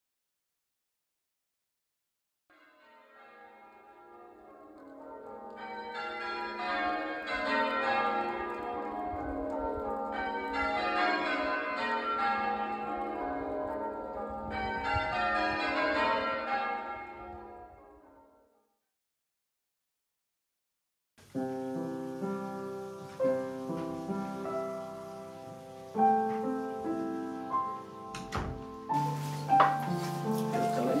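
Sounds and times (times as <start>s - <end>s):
church bells ringing: 2.5s - 18.4s, 28.9s - 31.0s.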